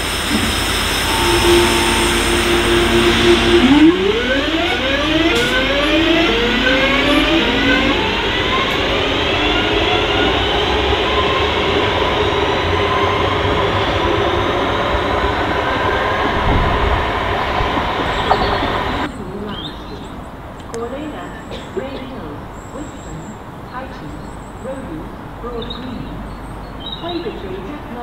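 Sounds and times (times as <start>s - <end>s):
train traction motors whining: 0.0s - 19.2s
wheels rumbling on rail: 0.0s - 28.0s.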